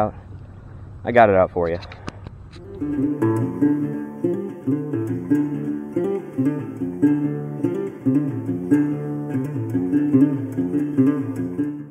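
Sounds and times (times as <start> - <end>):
bouncing bass line: 2.6 - 11.9
plucked guitar: 2.6 - 11.9.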